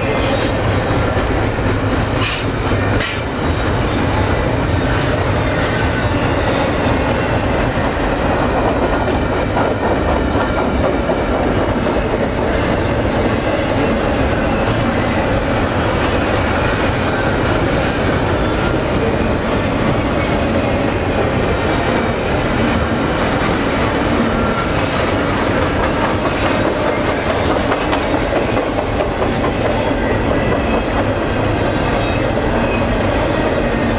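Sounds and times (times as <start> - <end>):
wheels clickety-clack: 0.0 - 3.9, 5.0 - 15.2, 21.7 - 33.9
freight train rumbling past: 0.0 - 33.9.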